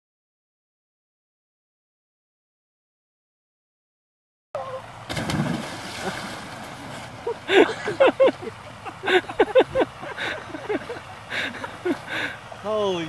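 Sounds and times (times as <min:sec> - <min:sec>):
splash into water: 0:05.1 - 0:07.4.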